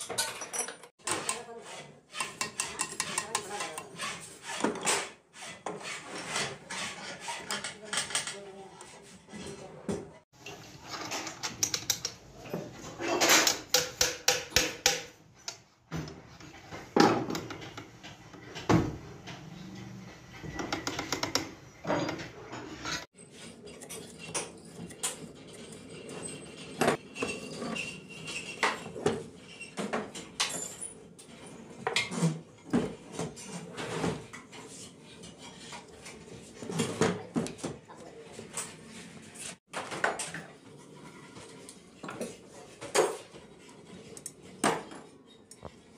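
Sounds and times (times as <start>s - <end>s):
metal tools clinking: 0.0s - 1.0s.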